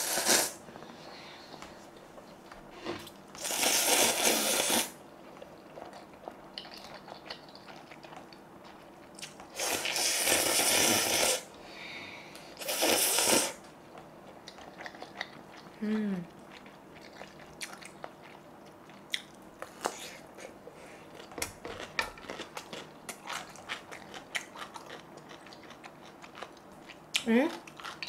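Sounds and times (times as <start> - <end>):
noodles being slurped: 3.4 - 5.0, 9.5 - 11.5, 12.6 - 13.6.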